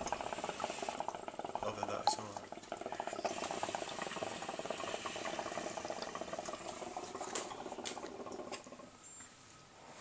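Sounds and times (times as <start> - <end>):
hookah water bubbling: 0.0 - 9.1.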